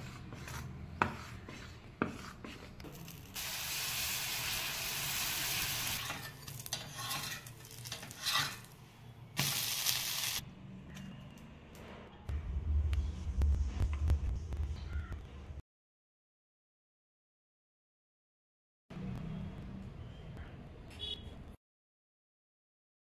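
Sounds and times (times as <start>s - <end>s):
spoon stirring batter in steel bowl: 0.0s - 3.1s
batter sizzling on hot griddle: 2.9s - 8.6s, 9.4s - 10.4s.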